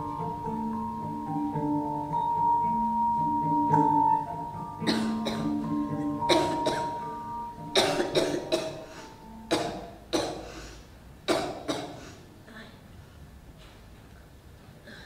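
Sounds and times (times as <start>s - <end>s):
soft mallet instrument notes: 0.0s - 10.2s
person coughing with echo: 4.9s - 5.6s, 6.3s - 7.0s, 7.8s - 10.5s.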